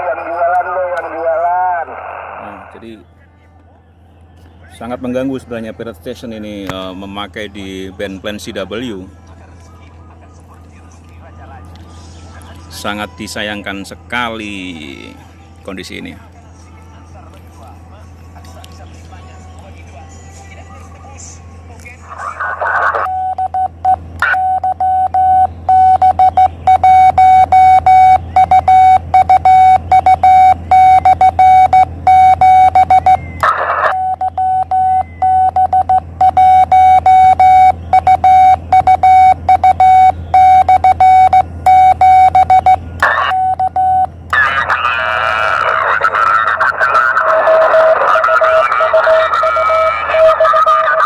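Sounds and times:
morse code tone: 0:00.0 - 0:01.9, 0:23.0 - 0:51.0
bursts of radio noise: 0:00.0 - 0:02.8, 0:22.0 - 0:23.1, 0:32.4 - 0:34.0, 0:42.2 - 0:43.7, 0:44.3 - 0:51.0
low hum: 0:21.0 - 0:51.0
warbling radio signal: 0:32.9 - 0:34.0, 0:44.3 - 0:51.0.

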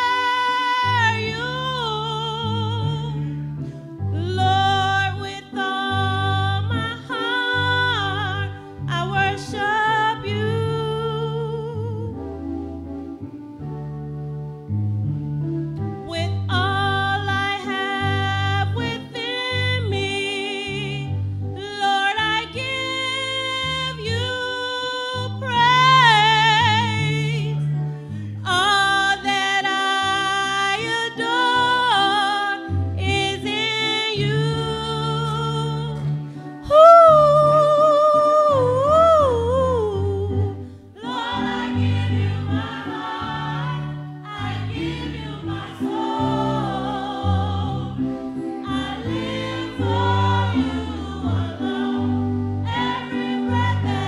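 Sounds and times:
choir singing gospel: 0:00.0 - 0:03.3, 0:04.2 - 0:11.8, 0:16.2 - 0:27.6, 0:40.9 - 0:54.0.

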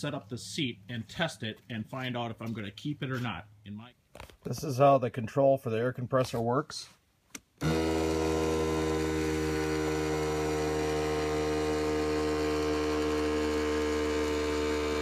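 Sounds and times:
air compressor humming: 0:07.6 - 0:15.0.

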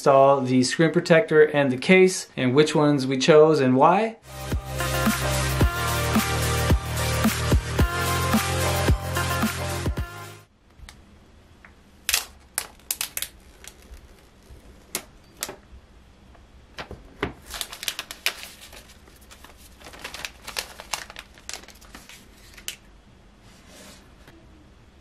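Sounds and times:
plastic wrap crinkling: 0:12.1 - 0:15.6, 0:17.4 - 0:22.9.

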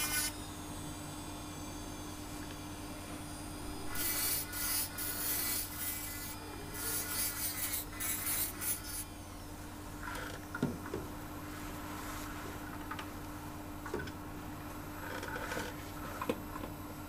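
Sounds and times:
dental handpiece grinding tooth: 0:00.0 - 0:00.4, 0:03.9 - 0:09.1
steady low hum: 0:00.0 - 0:17.0.

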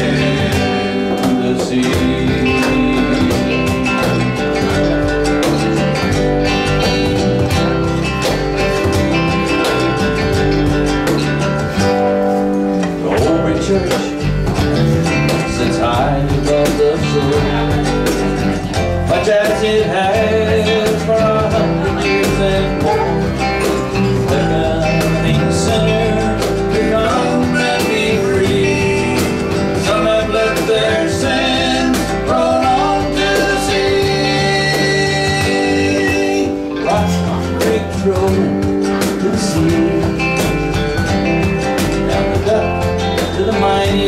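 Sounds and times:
live country band playing: 0:00.0 - 0:44.0.

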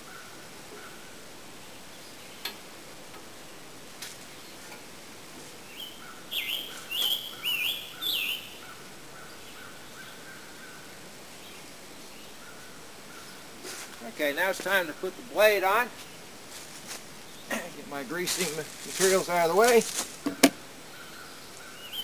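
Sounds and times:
songbird singing slurred notes: 0:05.6 - 0:16.3, 0:20.3 - 0:22.0.

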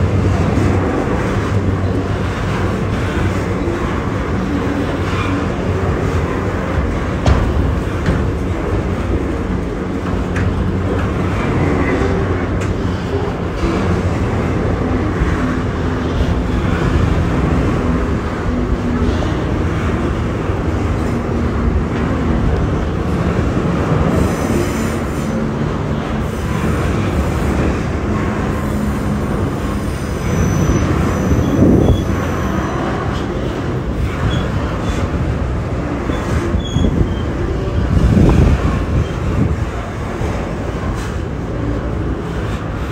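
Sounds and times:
diesel locomotive engine hum: 0:00.0 - 0:42.9
train wheels rumbling on rail: 0:00.0 - 0:42.9
high wheel squeals: 0:29.8 - 0:33.2, 0:36.1 - 0:37.8.

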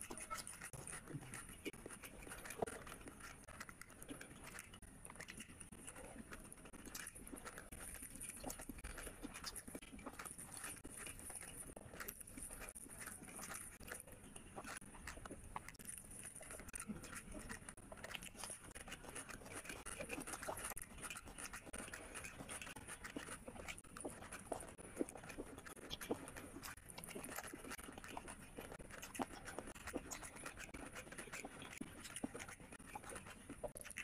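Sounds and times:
fingers squelching food: 0:00.0 - 0:34.0
wet chewing and lip smacks: 0:00.0 - 0:34.0.

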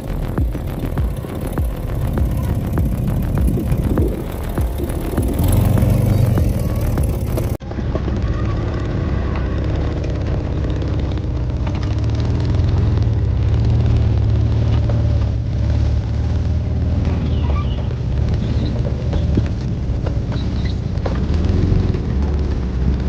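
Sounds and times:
vehicle engine running: 0:00.0 - 0:23.0.

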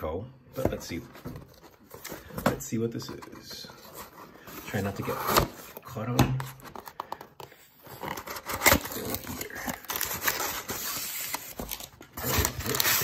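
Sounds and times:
cardboard box tearing: 0:07.9 - 0:13.0
paper packing crinkling: 0:07.9 - 0:13.0.

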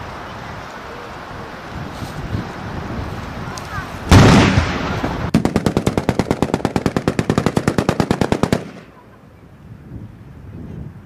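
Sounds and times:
machine-gun fire: 0:04.1 - 0:08.9.

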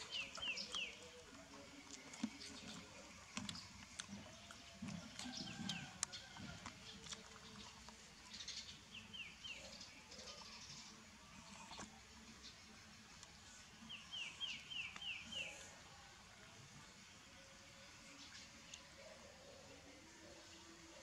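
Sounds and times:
bird chirping: 0:00.0 - 0:01.2
puppies suckling: 0:00.0 - 0:08.4.

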